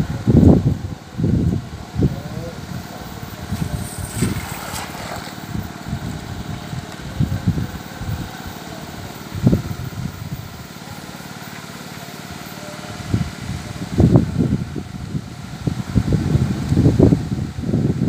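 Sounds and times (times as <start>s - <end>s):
steady engine-like drone: 0.0s - 16.5s
water splashing: 3.4s - 5.9s.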